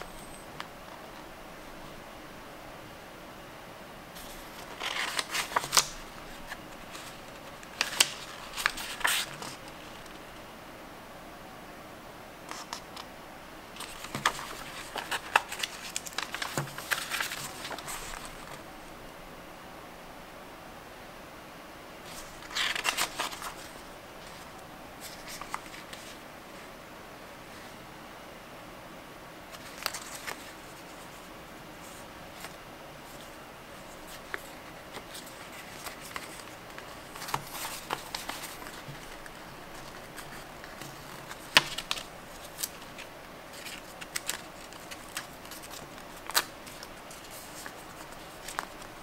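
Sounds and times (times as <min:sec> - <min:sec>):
paper rustling: 0:04.2 - 0:10.2, 0:13.8 - 0:18.6, 0:22.1 - 0:26.2, 0:29.5 - 0:49.0
sharp paper clicks: 0:34.1 - 0:49.0.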